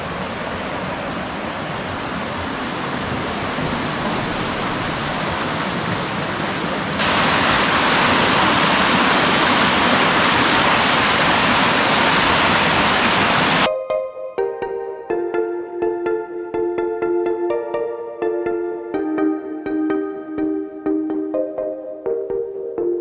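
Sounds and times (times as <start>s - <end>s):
creek water rushing over rocks: 0.0s - 13.7s
music with held notes: 13.7s - 23.0s.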